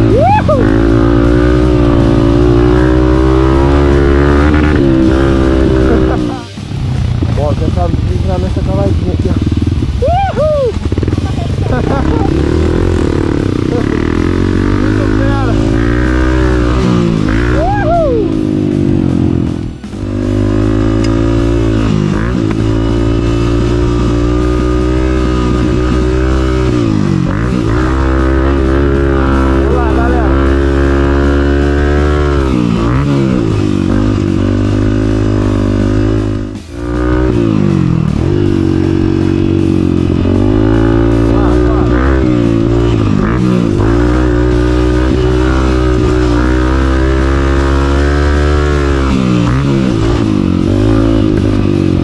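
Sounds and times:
motorcycle engine revving: 0.0 - 52.0
rock music with guitar: 0.0 - 52.0.

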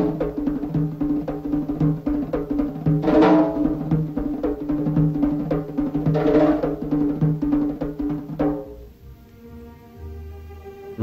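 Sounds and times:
fast drum beats: 0.0 - 8.8.

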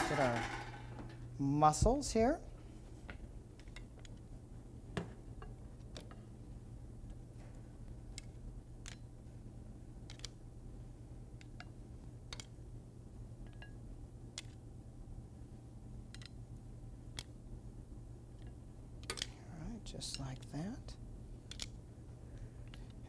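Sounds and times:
metal tongs clicking against pan: 19.0 - 19.3.

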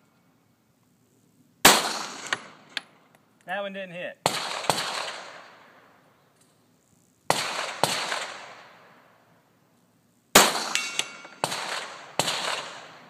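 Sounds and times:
pistol shots: 1.6 - 2.6, 4.2 - 5.8, 7.3 - 8.9, 10.3 - 13.0
bullet striking steel target: 10.4 - 13.0.

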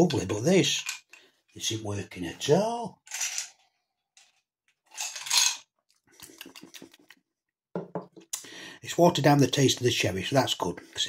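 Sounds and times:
ice cubes clinking in a glass: 4.9 - 5.6.

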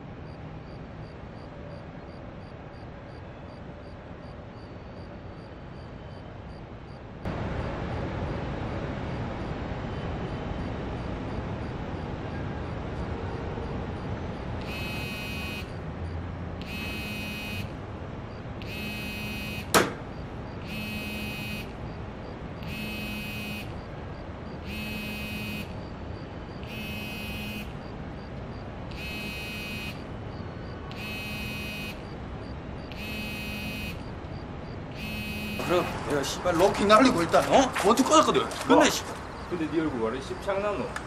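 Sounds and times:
steady background hum: 0.0 - 41.0
phone ringing tone: 14.6 - 15.8, 16.6 - 17.7, 18.6 - 19.7, 20.6 - 21.7, 22.6 - 23.8, 24.6 - 25.8, 26.6 - 27.8, 29.0 - 30.1, 30.9 - 32.1, 32.9 - 34.1, 35.0 - 36.0
sharp crack: 19.7 - 20.1.

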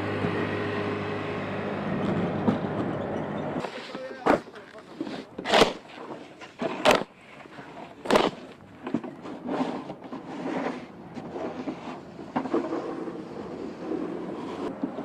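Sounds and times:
snow shovels scraping sidewalk: 3.6 - 15.0.

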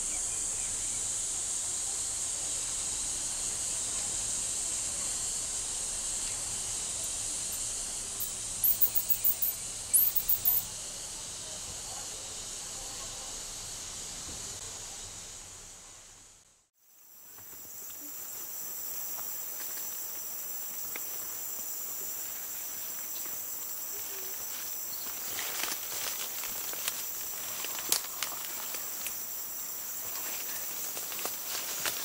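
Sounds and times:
insect chorus: 0.0 - 16.1, 16.8 - 32.0
rustling of leaves and cloth: 17.3 - 32.0.

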